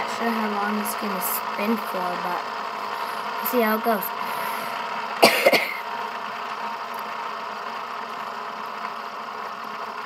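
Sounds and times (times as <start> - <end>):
metal fidget spinner whirring: 0.0 - 5.2
person coughing: 5.2 - 5.8.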